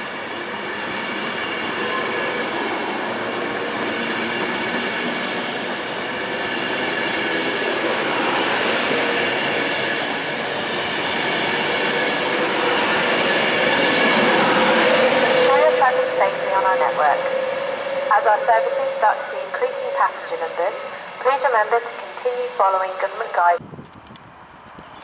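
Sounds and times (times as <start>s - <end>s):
electric train whine: 0.0s - 23.6s.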